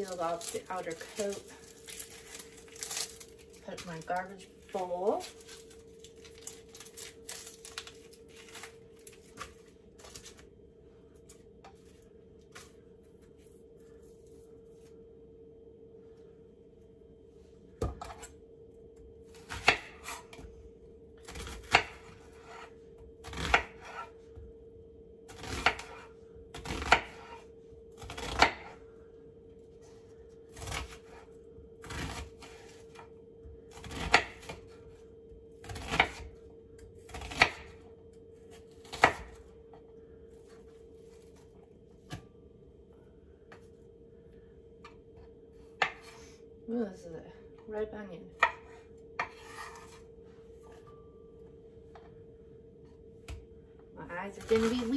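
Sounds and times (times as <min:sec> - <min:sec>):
faint steady hum: 0:00.0 - 0:54.9
knife cutting onion on board: 0:19.3 - 0:20.4, 0:21.2 - 0:24.2, 0:25.3 - 0:27.4, 0:28.0 - 0:28.8, 0:33.7 - 0:34.8, 0:35.6 - 0:36.3, 0:37.1 - 0:37.8, 0:38.5 - 0:39.4, 0:45.8 - 0:46.2, 0:48.3 - 0:50.1.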